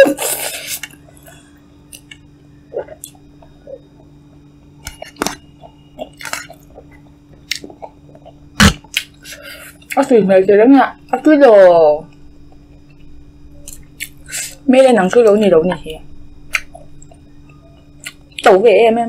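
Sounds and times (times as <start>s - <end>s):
low hum: 0.0s - 19.0s
person chewing noodles: 0.2s - 10.0s, 13.6s - 14.6s.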